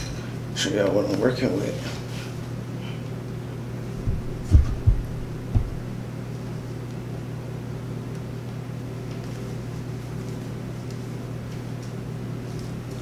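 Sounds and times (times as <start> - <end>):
steady low hum: 0.0 - 13.0
dull low thumps: 4.0 - 6.1.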